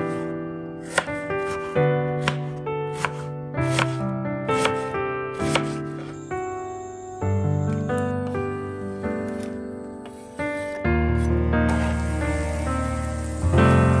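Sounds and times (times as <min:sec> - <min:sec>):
background piano music: 0:00.0 - 0:14.0
knife chopping on cutting board: 0:00.8 - 0:04.0, 0:04.6 - 0:05.8.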